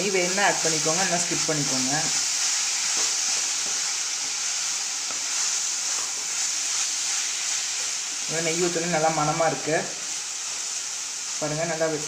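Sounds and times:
mixture sizzling in a pan: 0.0 - 12.0
spatula scraping a pan: 1.7 - 8.0.

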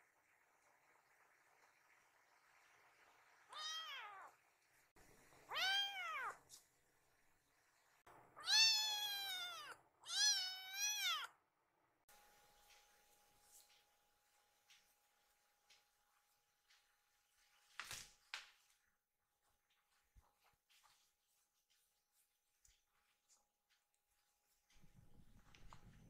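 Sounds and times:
kitten meowing: 3.5 - 4.3, 5.5 - 6.4, 8.4 - 11.3.

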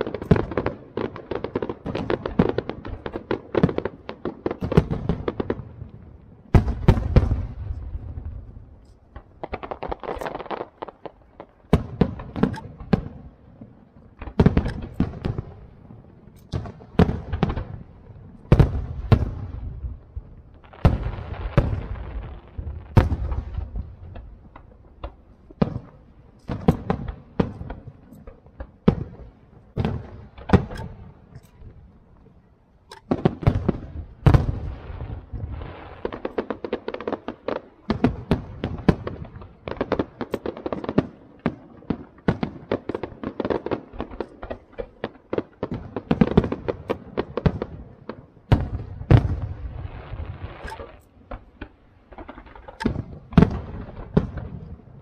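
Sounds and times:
firework shells bursting: 14.1 - 17.8.

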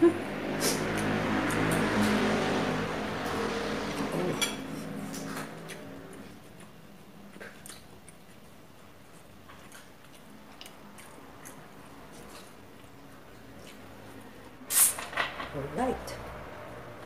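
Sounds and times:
faint chewing: 4.7 - 14.6.

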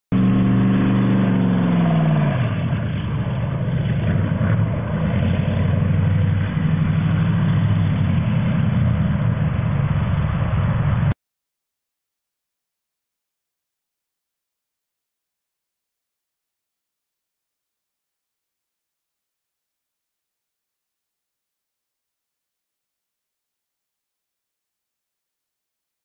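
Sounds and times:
engine revving down: 0.1 - 11.2.

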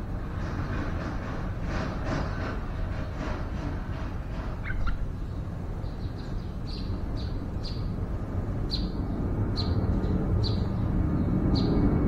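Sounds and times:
bulbul calling: 4.6 - 7.9.

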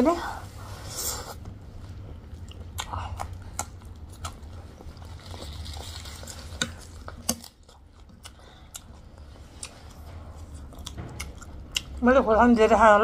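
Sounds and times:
chewing: 2.3 - 12.1.

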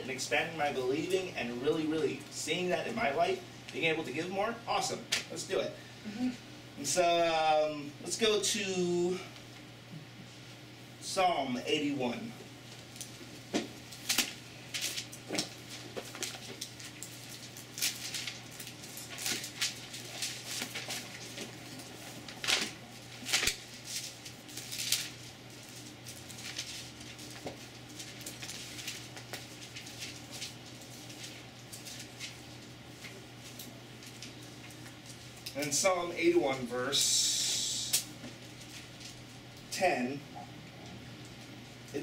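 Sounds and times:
pages rustling and flicking: 12.8 - 35.4.

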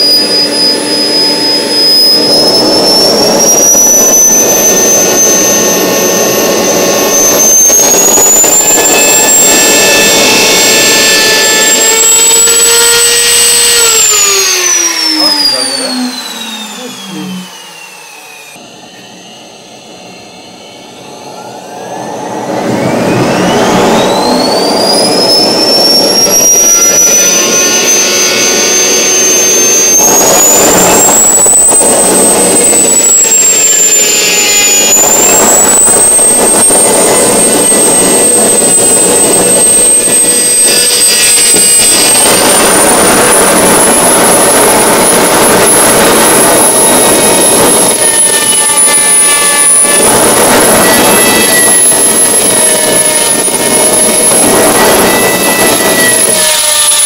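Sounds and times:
turbojet engine whine and roar: 0.0 - 57.0.

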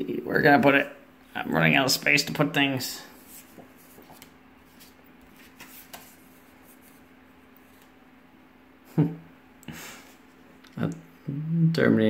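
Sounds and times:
paper rustling and tapping: 3.4 - 7.0.

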